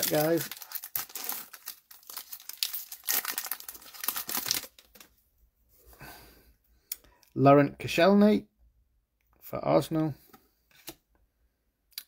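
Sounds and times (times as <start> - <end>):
plastic wrapper tearing and crinkling: 0.0 - 5.1.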